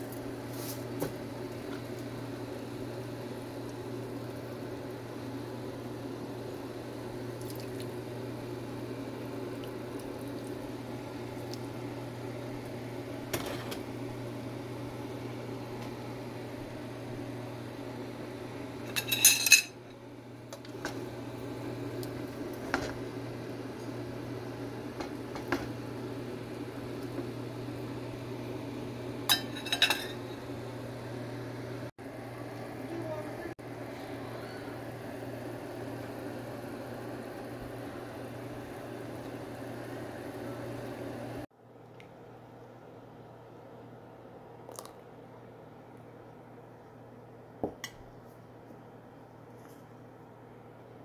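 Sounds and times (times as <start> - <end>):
steady low hum: 0.0 - 51.0
cookware clinking: 18.9 - 19.8, 29.3 - 30.3.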